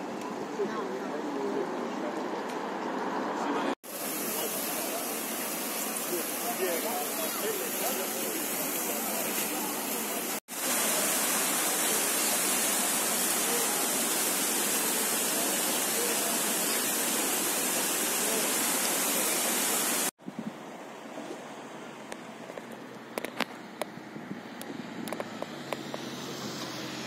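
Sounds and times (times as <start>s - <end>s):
fountain jets splashing: 3.8s - 20.1s, 24.6s - 27.0s.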